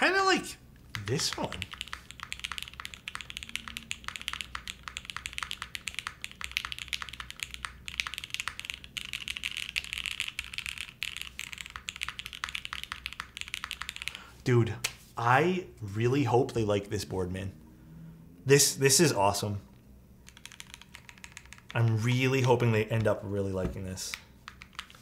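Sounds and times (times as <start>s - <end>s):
mechanical keyboard typing: 0.9s - 14.2s, 20.3s - 23.1s, 24.1s - 25.0s.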